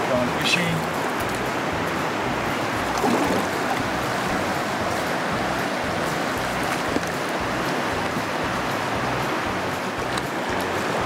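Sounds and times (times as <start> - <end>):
river water rushing over rocks: 0.0 - 11.0.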